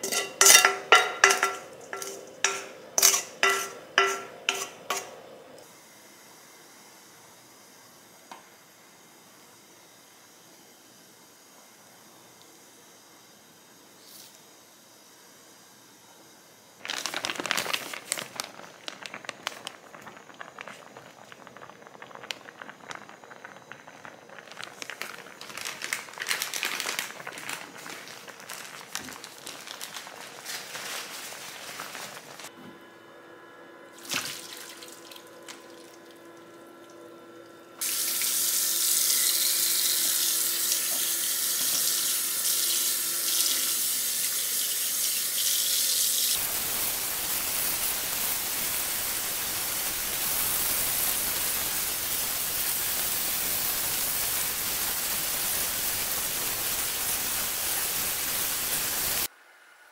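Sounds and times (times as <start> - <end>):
tap running into metal strainer: 0.0 - 5.1
water boiling and bubbling: 16.8 - 30.6, 33.9 - 45.8, 46.4 - 59.3.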